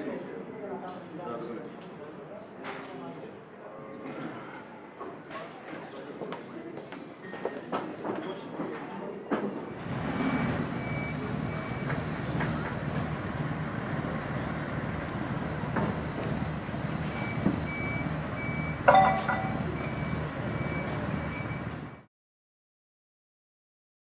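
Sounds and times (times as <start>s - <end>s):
engine running: 9.8s - 22.0s.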